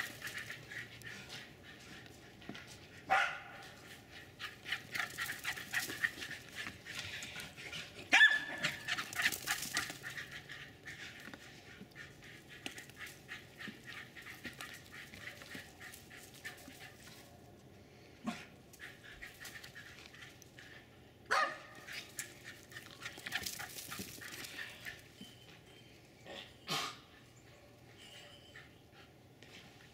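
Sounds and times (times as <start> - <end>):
dog barking sharply: 3.1 - 3.6, 21.3 - 21.7.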